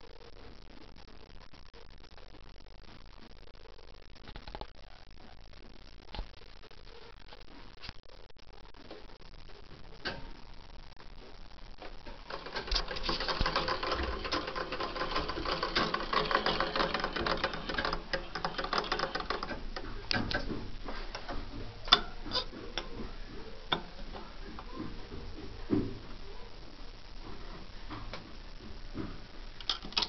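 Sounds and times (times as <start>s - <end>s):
sewing machine clattering: 12.0s - 24.0s.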